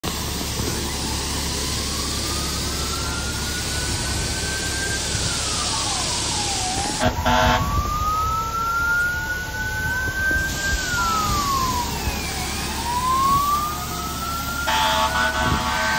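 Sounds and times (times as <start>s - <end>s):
fire siren wailing: 0.1s - 15.9s
water spraying hiss: 0.1s - 15.9s
air horn blast: 7.0s - 7.8s, 14.7s - 15.9s.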